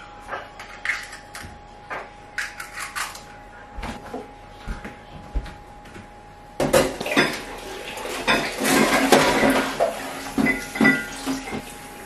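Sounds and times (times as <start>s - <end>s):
dishes and cutlery clattering: 6.6s - 11.7s.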